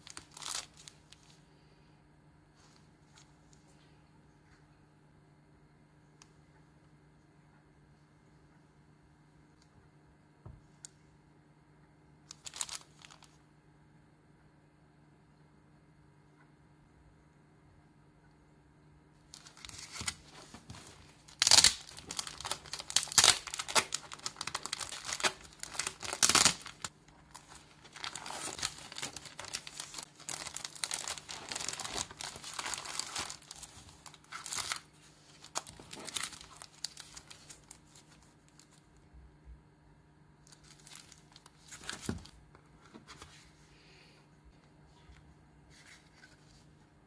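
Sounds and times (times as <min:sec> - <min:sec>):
cellophane crinkling and tearing: 0:00.0 - 0:01.4, 0:12.3 - 0:13.4, 0:19.2 - 0:38.8, 0:40.4 - 0:42.4.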